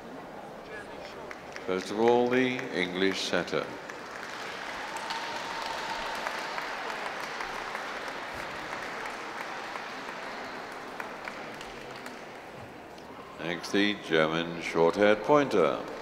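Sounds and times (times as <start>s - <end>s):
audience applauding: 1.1s - 12.5s.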